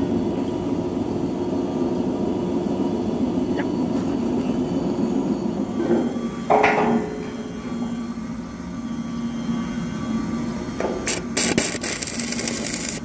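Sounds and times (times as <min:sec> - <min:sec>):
power tool rattling on steel: 0:11.1 - 0:13.0.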